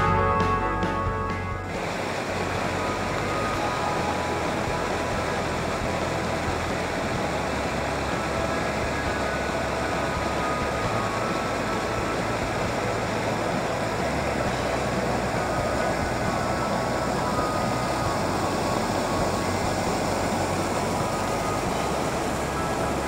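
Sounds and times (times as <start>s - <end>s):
stream splashing over boulders: 1.7s - 23.0s.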